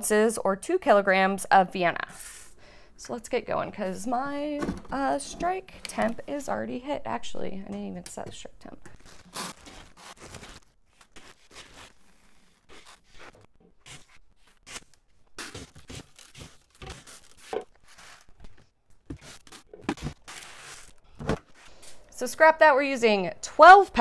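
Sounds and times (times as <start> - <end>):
plastic buckets being rummaged: 4.4 - 6.3.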